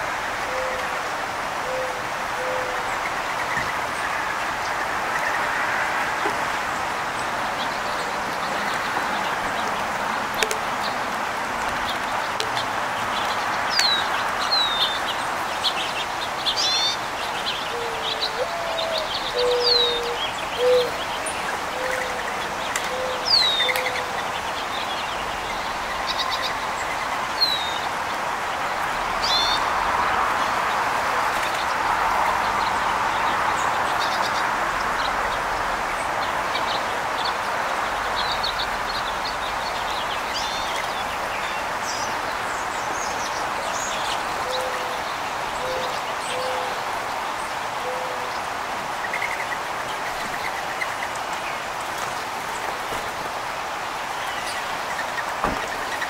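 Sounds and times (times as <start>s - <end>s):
songbirds chirping: 0.0s - 56.0s
dove cooing: 17.6s - 24.2s.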